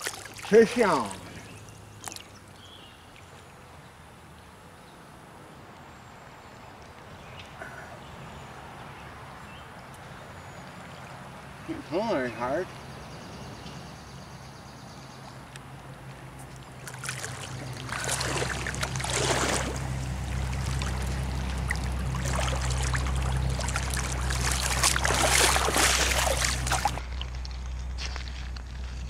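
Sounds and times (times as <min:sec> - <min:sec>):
fish splashing in water: 0:00.0 - 0:02.4, 0:16.7 - 0:27.0
steady low rumble: 0:16.6 - 0:29.0.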